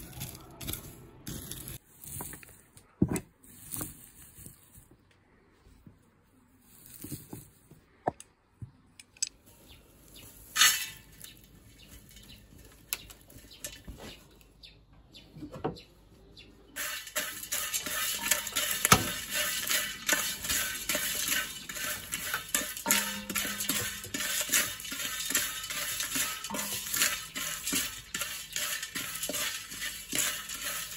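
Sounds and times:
wooden spatula scraping roots in pot: 10.1 - 14.5, 16.7 - 30.9
dry roots clicking into metal pot: 10.6 - 14.5, 16.8 - 30.9.

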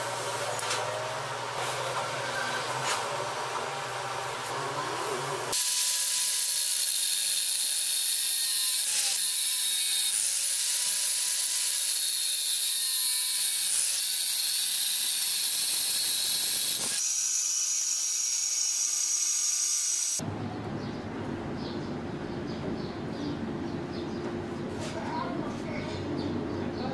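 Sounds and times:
angle grinder cutting metal: 0.0 - 20.2.

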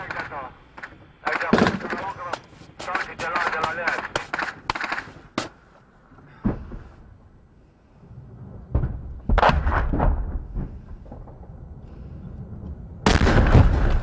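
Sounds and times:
explosion thuds: 8.5 - 11.8, 13.0 - 14.0.

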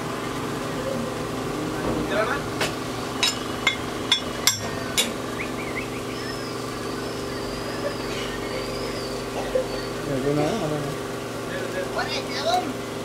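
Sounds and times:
steady machine hum: 0.0 - 13.0
metal utensils clanking on griddle: 2.6 - 5.2.

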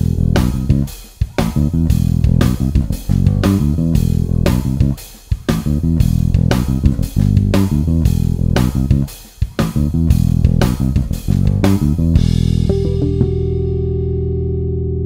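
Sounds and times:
electric bass plucked: 0.0 - 15.0.

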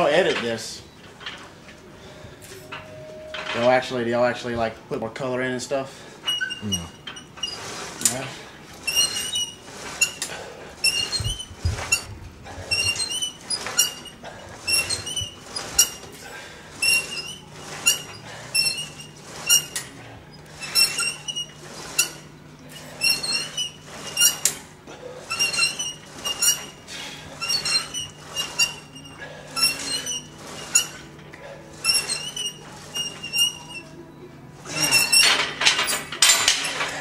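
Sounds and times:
pulleys squeaking: 6.2 - 8.2, 8.8 - 16.1, 16.8 - 24.6, 25.2 - 31.1, 31.7 - 34.0, 34.6 - 37.0.

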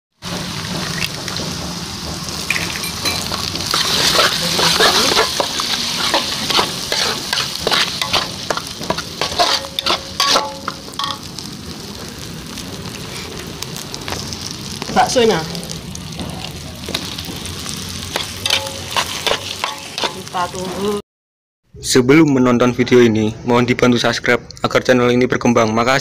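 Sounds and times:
egg sizzling in oil: 0.2 - 21.0
metal spatula scraping pan: 2.3 - 11.3, 18.0 - 21.0.

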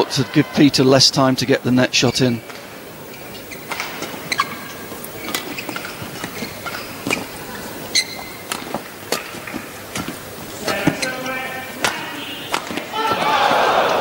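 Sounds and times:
shoes squeaking on court floor: 2.0 - 14.0
rackets hitting shuttlecock: 3.5 - 7.3, 8.2 - 14.0.

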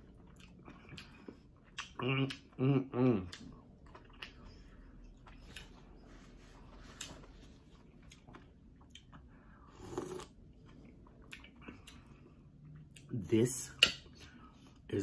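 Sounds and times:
slurp: 9.7 - 10.4.

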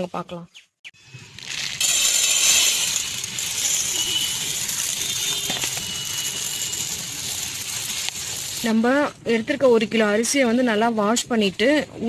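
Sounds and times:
rice poured into steel bowl: 1.3 - 8.8.

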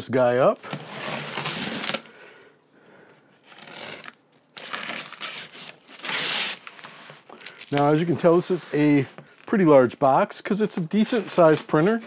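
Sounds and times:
tape and cardboard crinkling: 0.6 - 2.1, 3.4 - 9.6, 10.8 - 12.0
scissors slitting packing tape: 1.0 - 2.1, 3.5 - 6.9.

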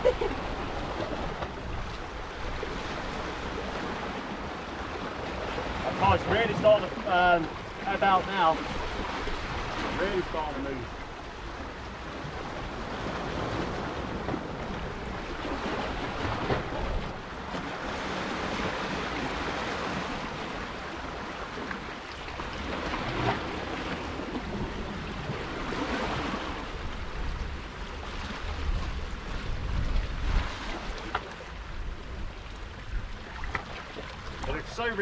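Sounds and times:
sea waves washing against rocks: 0.0 - 35.0.

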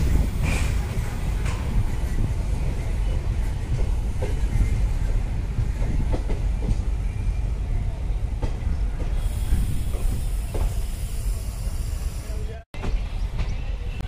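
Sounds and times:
train wheels rumbling: 0.0 - 14.0
high hiss: 9.2 - 12.4.

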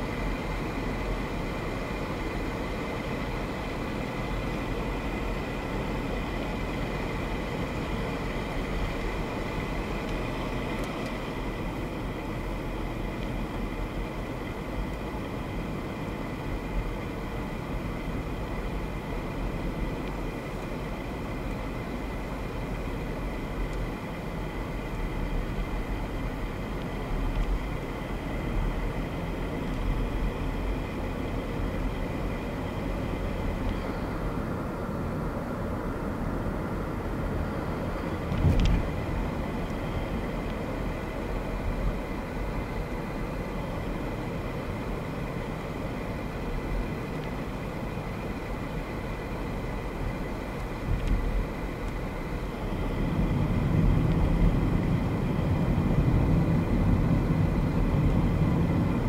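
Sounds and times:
car cabin road and engine rumble: 0.0 - 59.0.

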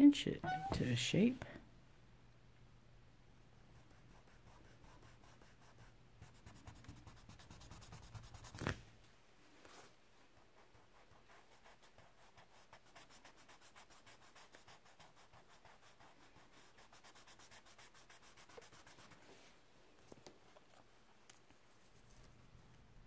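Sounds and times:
charcoal rubbing on paper: 3.8 - 8.7, 10.4 - 19.3.

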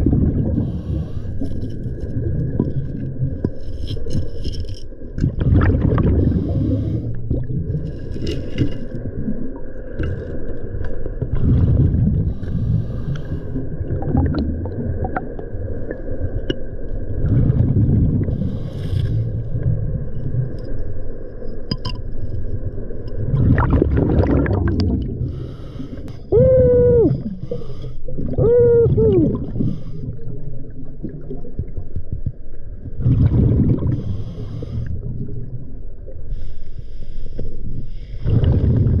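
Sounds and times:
exhaled bubbles rumbling: 0.0 - 4.2, 5.0 - 36.3, 37.6 - 39.0
regulator inhale hiss: 6.3 - 7.2, 12.3 - 13.6, 25.3 - 26.3, 27.4 - 28.0, 34.0 - 35.0, 36.3 - 38.2.

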